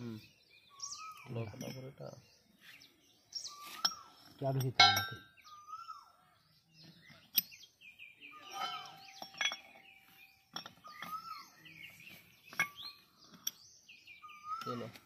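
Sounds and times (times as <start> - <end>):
birds singing: 0.0 - 15.0
metal parts clinking: 8.5 - 9.9, 10.5 - 11.4.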